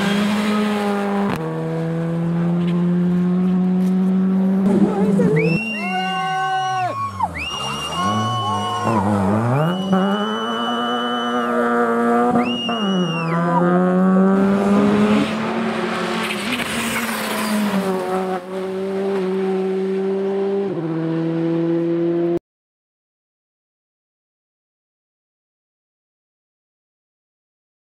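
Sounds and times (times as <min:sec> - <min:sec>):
rally car engines revving: 0:00.0 - 0:22.4.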